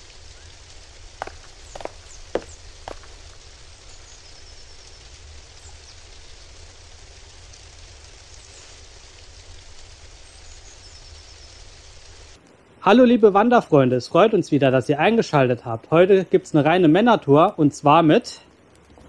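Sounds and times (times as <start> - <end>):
steady hiss: 0.0 - 14.3
sharp knocks: 1.2 - 3.2.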